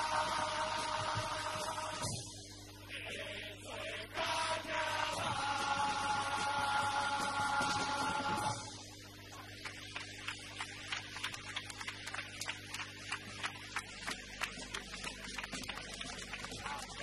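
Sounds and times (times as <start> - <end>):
mains hum: 0.0 - 17.0
audience applauding: 9.5 - 17.0.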